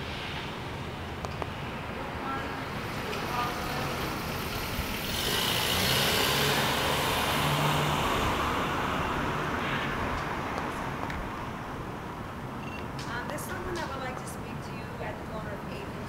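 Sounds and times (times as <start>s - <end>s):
vehicle passing by: 0.0s - 11.8s.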